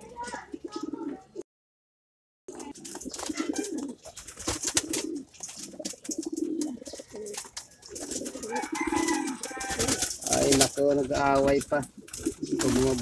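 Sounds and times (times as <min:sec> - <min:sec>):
pigeons cooing: 0:00.1 - 0:01.4, 0:02.5 - 0:13.0
sharp clicks and rustles: 0:02.5 - 0:13.0.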